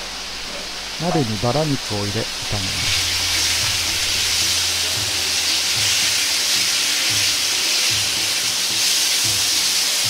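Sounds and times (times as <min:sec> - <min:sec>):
meat sizzling in a wok: 0:00.0 - 0:10.0.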